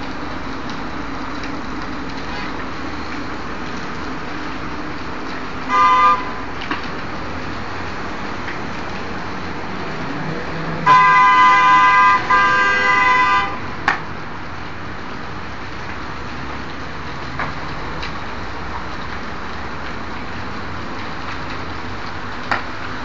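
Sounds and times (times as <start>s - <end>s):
vehicle horn blasts: 5.7s - 6.4s, 10.9s - 13.7s.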